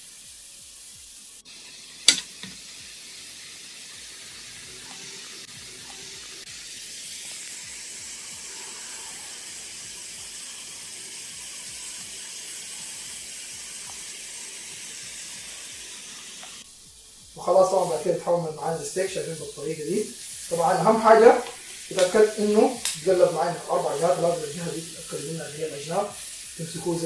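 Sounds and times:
steaks sizzling in a grill pan: 0.0s - 27.0s
sharp click: 2.1s - 2.6s.

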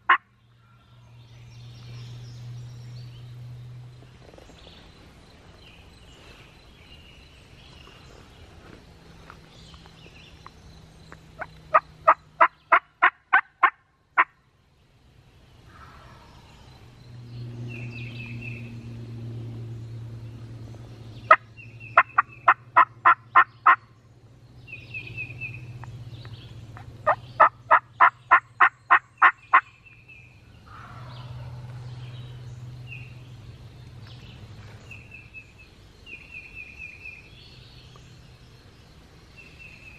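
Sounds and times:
songbirds chirping faintly: 0.0s - 39.9s
turkey yelping: 11.7s - 14.3s, 27.1s - 29.6s.

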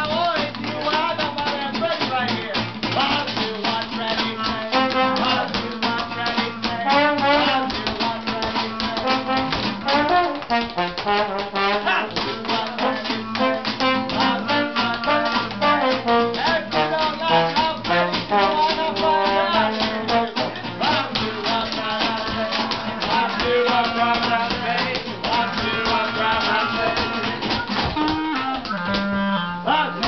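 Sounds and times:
tap shoes: 0.0s - 29.2s
strummed rhythm guitar: 0.0s - 30.0s
clarinet: 4.7s - 5.5s, 8.6s - 20.5s, 26.1s - 30.0s
trombone: 4.7s - 5.5s, 6.8s - 7.8s, 9.0s - 12.2s, 12.8s - 20.6s.

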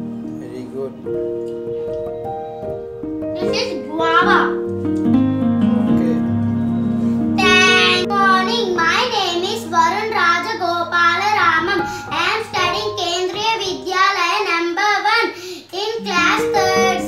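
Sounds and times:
held backing tones: 0.0s - 15.0s, 15.7s - 17.0s
child singing: 7.4s - 17.0s.

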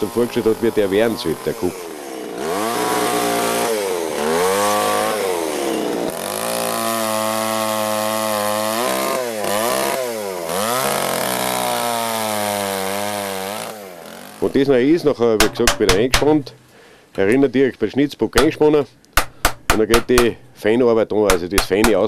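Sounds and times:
chainsaw cutting wood: 0.0s - 14.7s, 18.4s - 20.6s, 21.2s - 22.0s.

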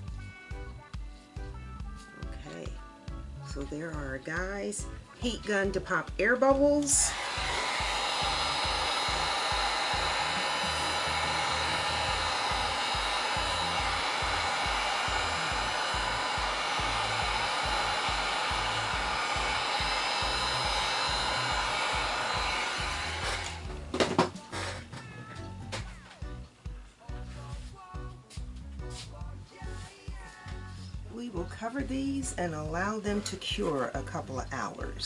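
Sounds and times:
heat gun blowing: 6.8s - 24.9s.

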